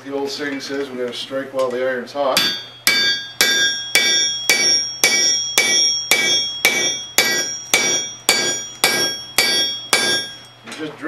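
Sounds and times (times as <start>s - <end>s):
hammer striking steel on anvil: 2.4s - 10.6s.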